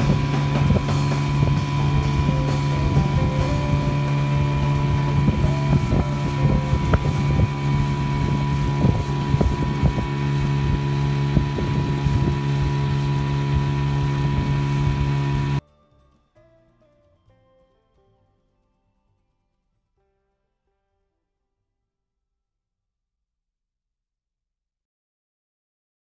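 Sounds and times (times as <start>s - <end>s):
hull slapping waves: 0.0s - 15.6s
outboard motor running: 0.0s - 15.6s
wind on microphone: 0.0s - 15.6s.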